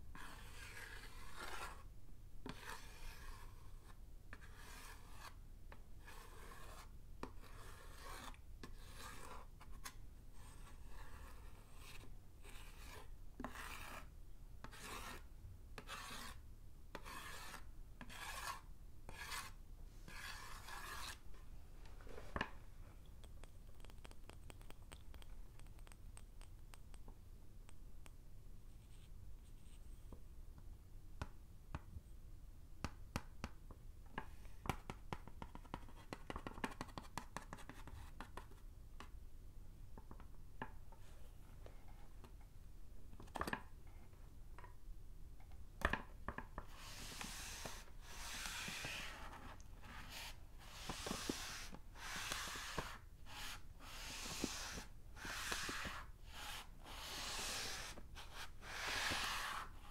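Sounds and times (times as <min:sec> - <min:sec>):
chalk clicks and scratches: 0:00.1 - 0:05.4, 0:06.0 - 0:21.2, 0:23.0 - 0:30.2, 0:34.2 - 0:39.1, 0:46.3 - 0:59.9
chalk scraping on chalkboard: 0:00.2 - 0:05.4, 0:06.0 - 0:21.2, 0:46.7 - 0:59.9
tissue wiping chalkboard: 0:17.0 - 0:21.3, 0:46.7 - 0:59.9.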